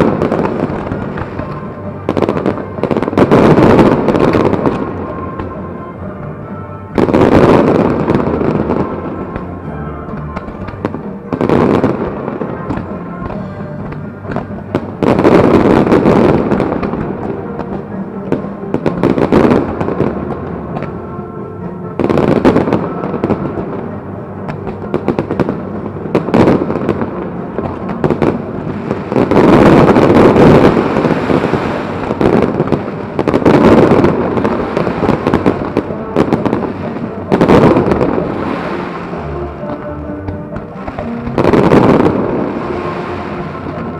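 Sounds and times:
fireworks banging and crackling: 0:00.0 - 0:21.2, 0:21.9 - 0:43.9
music playing: 0:00.0 - 0:43.9.

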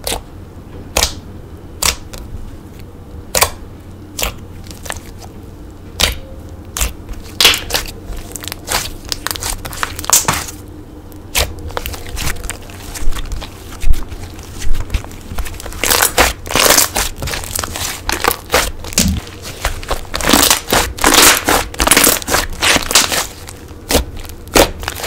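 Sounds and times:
slime popping and crackling: 0:00.9 - 0:01.2, 0:06.8 - 0:10.6, 0:11.3 - 0:25.0
hands squishing slime: 0:01.8 - 0:02.2, 0:04.2 - 0:05.3, 0:06.0 - 0:10.6, 0:11.3 - 0:25.0.

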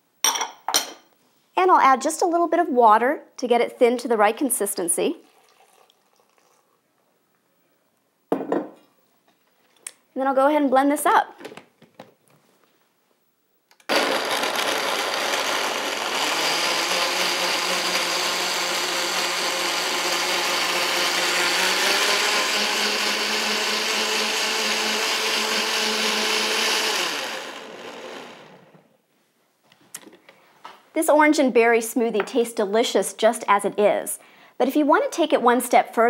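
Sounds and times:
blender motor running: 0:13.9 - 0:28.8.

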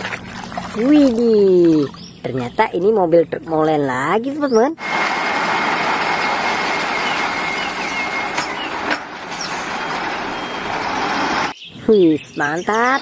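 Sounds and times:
truck driving slowly: 0:04.8 - 0:11.6.

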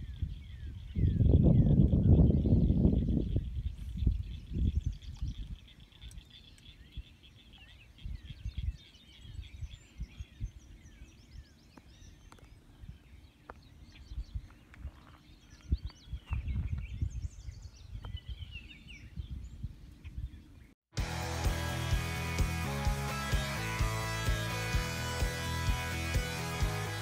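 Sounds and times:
wind buffeting microphone: 0:00.0 - 0:07.2, 0:07.8 - 0:20.7
songbirds chirping and trilling: 0:00.0 - 0:27.0.

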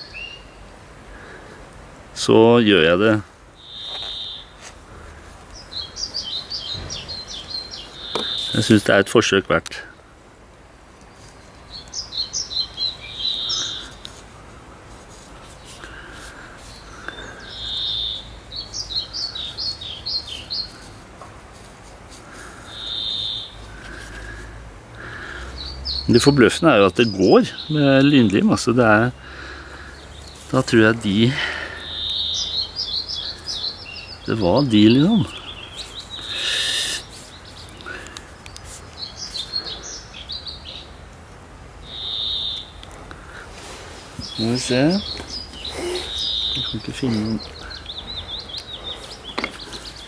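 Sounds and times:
small birds chirping: 0:00.0 - 0:01.6, 0:02.2 - 0:10.2, 0:10.9 - 0:50.0
songbird singing: 0:00.0 - 0:50.0
short breathy hiss: 0:36.0 - 0:38.4.

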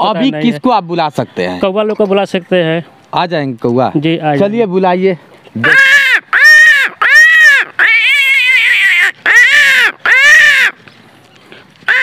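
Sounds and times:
man imitating crow caws: 0:05.6 - 0:10.8.

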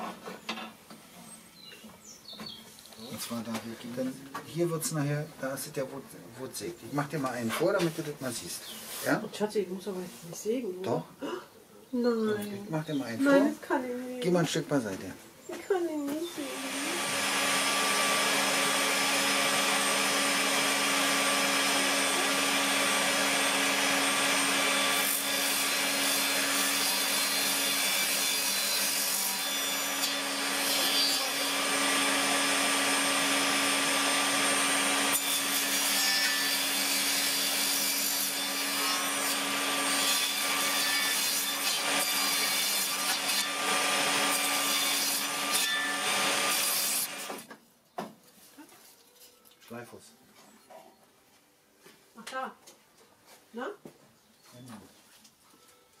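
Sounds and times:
saw cutting wood: 0:16.3 - 0:47.5
table saw running: 0:16.4 - 0:47.4.

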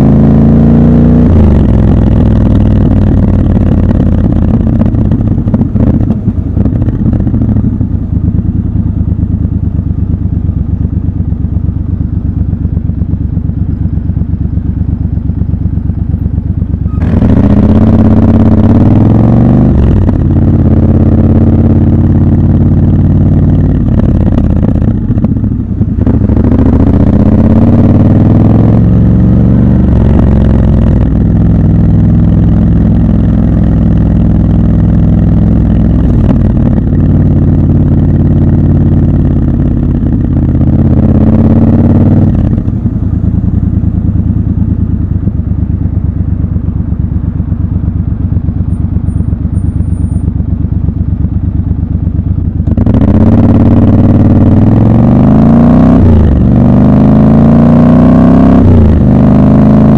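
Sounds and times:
motorcycle engine shifting gears: 0:00.0 - 0:59.9.

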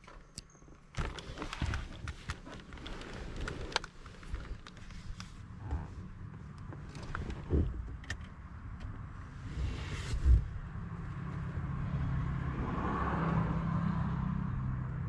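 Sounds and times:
low rustling handling noise: 0:00.0 - 0:08.4.

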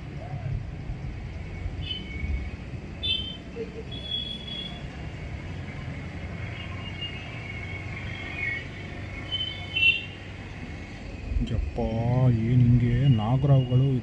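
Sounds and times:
bird chirps: 0:01.8 - 0:04.8, 0:06.5 - 0:10.2
steady low rumble: 0:11.0 - 0:14.0.

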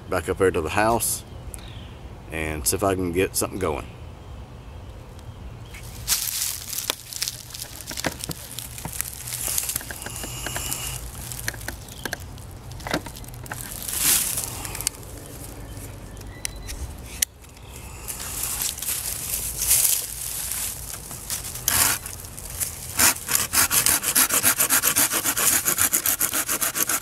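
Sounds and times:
leaves and twigs crunching underfoot: 0:05.7 - 0:23.0
sharp clicks and knocks: 0:06.8 - 0:13.8.

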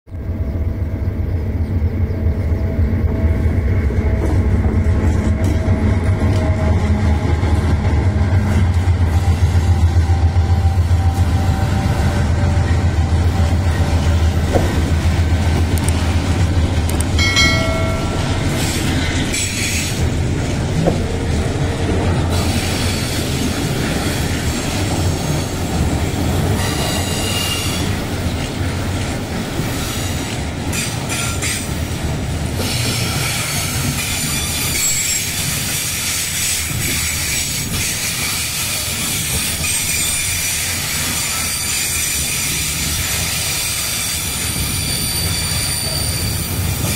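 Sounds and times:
train wheels squealing on rails: 0:00.2 - 0:14.3, 0:17.2 - 0:20.2, 0:22.2 - 0:28.4, 0:29.5 - 0:46.9
locomotive engine rumble: 0:00.2 - 0:26.6.

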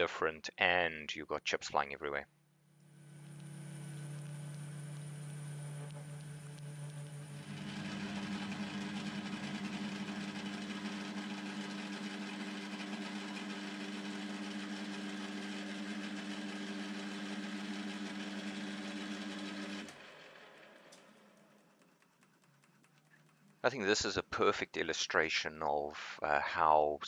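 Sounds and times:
lathe spindle drive humming: 0:02.9 - 0:21.3.

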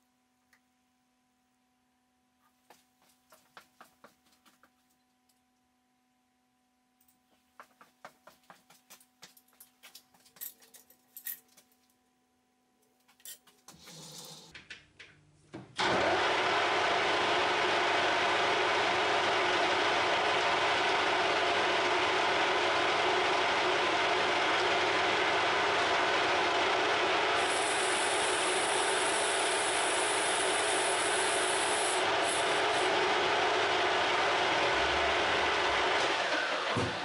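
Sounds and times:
metal lathe running: 0:15.8 - 0:36.8.

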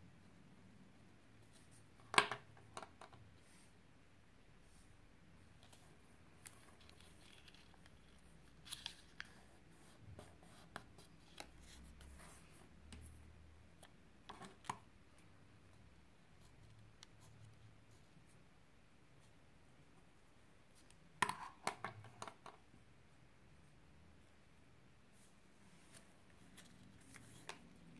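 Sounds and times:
paper rustling and crackling: 0:06.4 - 0:09.5.

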